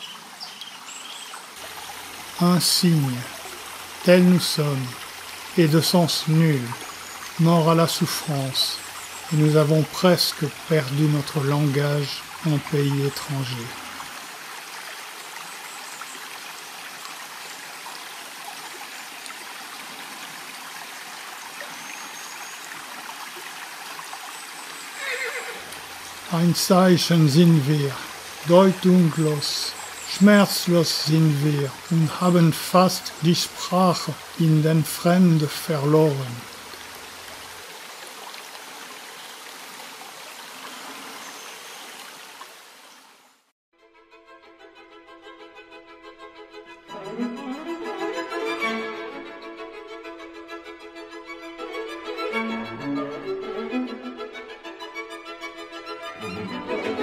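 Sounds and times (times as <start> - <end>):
stream over stones: 0.0 - 43.5.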